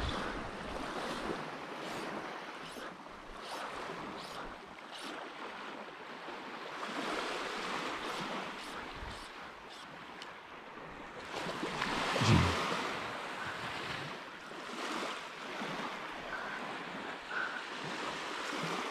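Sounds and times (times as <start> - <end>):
wind on microphone: 0.0 - 2.2
small waves breaking: 0.0 - 18.9
surf lapping on a beach: 0.0 - 18.9.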